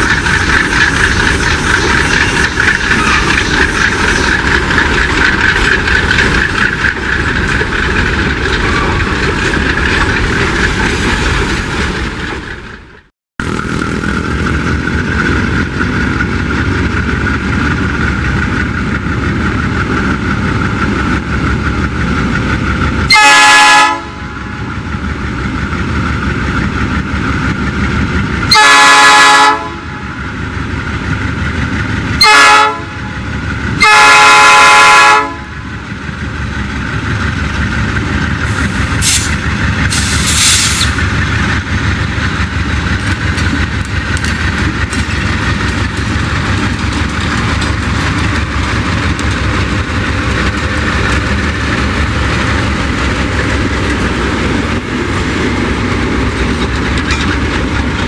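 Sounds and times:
diesel locomotive engines rumbling: 0.0 - 58.0
locomotive air horn blasts: 23.1 - 24.3, 28.5 - 30.0, 32.2 - 33.0, 33.8 - 35.5.

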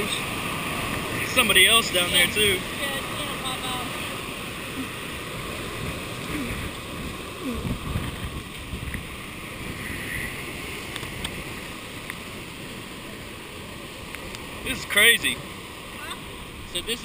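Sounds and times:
wind buffeting microphone: 2.6 - 11.9.

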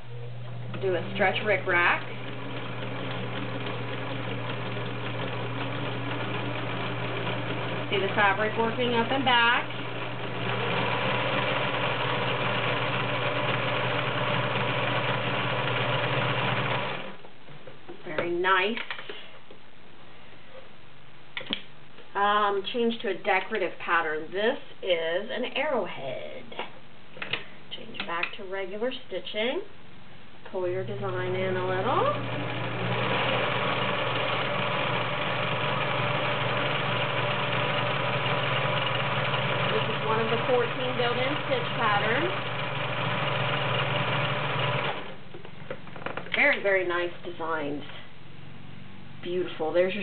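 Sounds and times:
sewing machine running: 0.7 - 17.2, 31.4 - 45.2.

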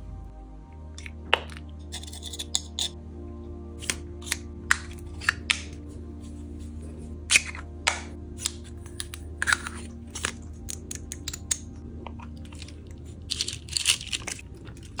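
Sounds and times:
beads clicking and rattling: 12.4 - 14.4.

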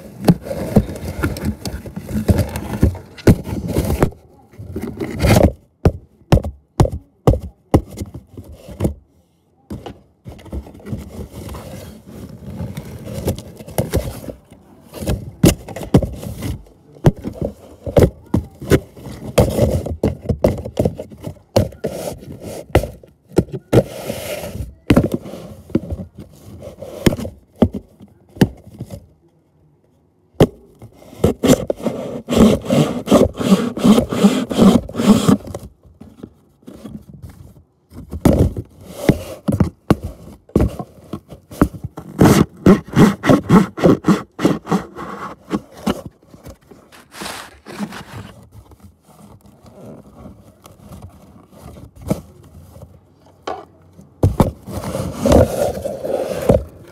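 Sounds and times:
cardboard box knocking and scraping: 0.0 - 9.0, 9.7 - 29.1, 30.4 - 56.9.

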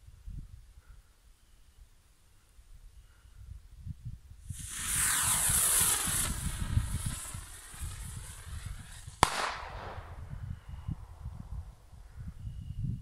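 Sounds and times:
firework rocket hissing: 4.4 - 10.7
firework bang: 4.5 - 10.6.

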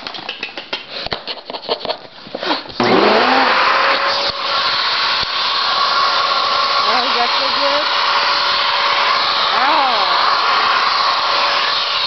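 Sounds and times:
vacuum cleaner motor whine: 2.8 - 12.0.

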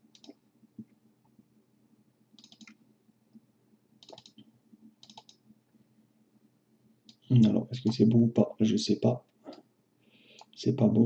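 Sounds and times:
faint low hum: 0.0 - 11.0
computer mouse clicks: 0.1 - 0.4, 2.4 - 2.8, 4.0 - 5.4.

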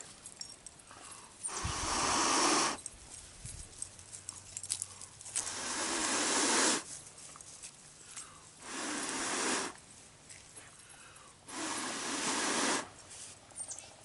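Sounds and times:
person blowing airy breaths: 1.0 - 2.8, 5.4 - 6.9, 8.2 - 9.8, 10.9 - 13.4.

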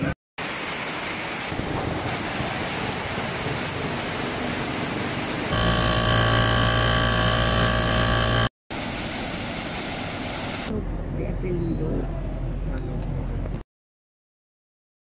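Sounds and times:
rain on a wet street: 0.4 - 5.5
machine drone: 5.5 - 8.5.

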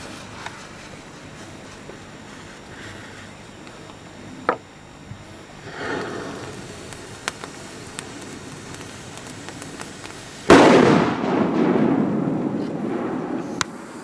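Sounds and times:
firecracker bang with echo: 5.7 - 14.0
faint ticks: 5.9 - 10.3.

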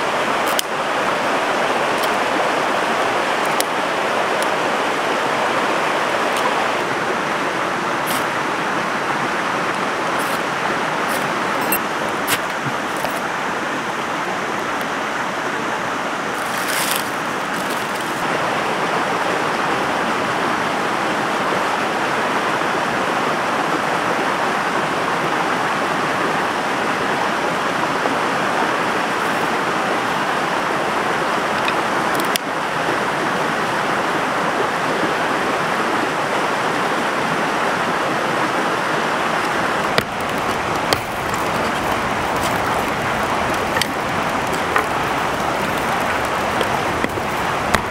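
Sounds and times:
water rushing over rocks: 0.0 - 47.9.

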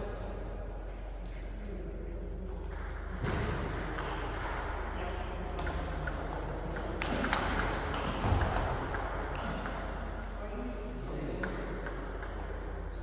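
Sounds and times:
ping pong ball clicking: 5.6 - 9.9.

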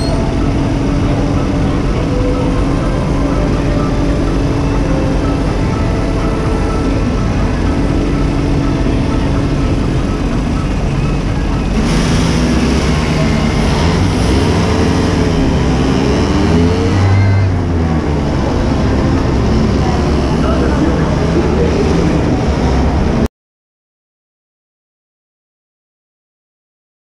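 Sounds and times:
go-kart engines running: 0.0 - 23.3
loud rush of noise: 0.0 - 23.3.

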